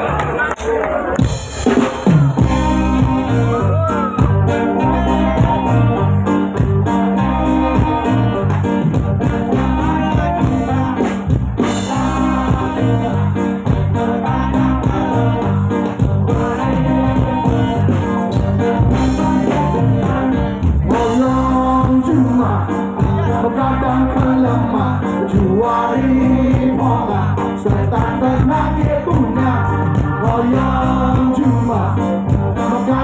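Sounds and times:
live band playing: 0.0 - 33.0.

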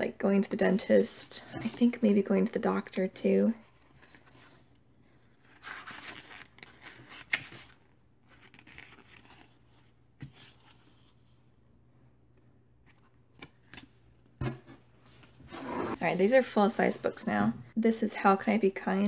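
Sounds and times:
book pages flipping: 5.3 - 11.4, 12.3 - 16.2.

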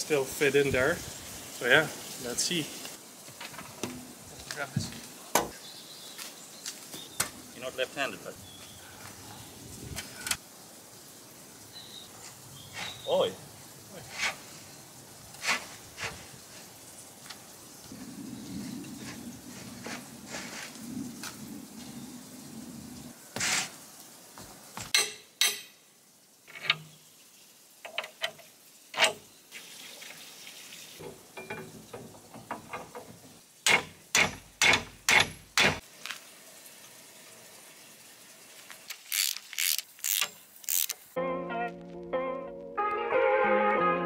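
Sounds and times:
metal knocks and clanks: 31.0 - 35.8
socket ratchet clicking: 38.9 - 41.0.

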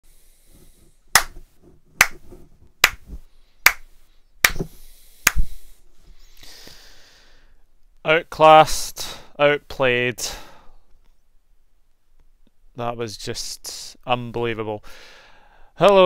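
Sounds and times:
slow handclap: 1.2 - 1.4, 2.0 - 2.2, 2.8 - 3.0, 3.7 - 4.6, 5.3 - 5.5.

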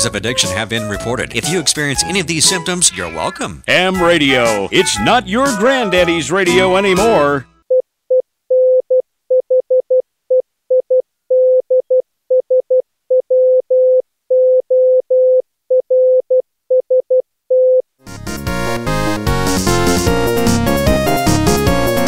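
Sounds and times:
electronic theme music: 0.0 - 7.6, 18.0 - 22.0.

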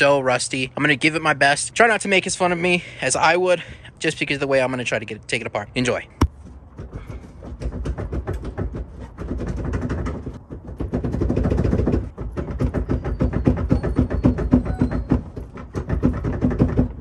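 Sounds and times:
car seat rattling and knocking: 6.2 - 17.0.

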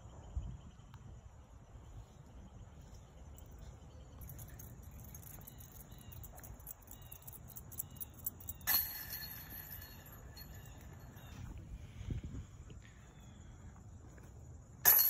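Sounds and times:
insects ticking: 0.5 - 11.5
chains jangling: 4.2 - 11.3
disc striking metal basket: 7.8 - 11.3.

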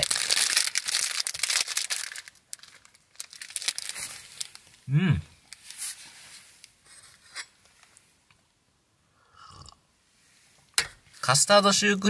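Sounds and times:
snack wrapper rustling: 0.0 - 4.8
person humming: 4.9 - 5.3.

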